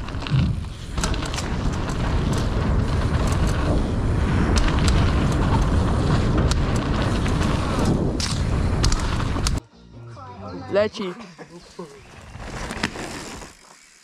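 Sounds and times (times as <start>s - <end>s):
bike rattling over bumps: 0.0s - 9.6s, 12.0s - 14.0s
tyre rumble on dirt: 0.0s - 9.6s
wind on microphone: 0.0s - 9.6s.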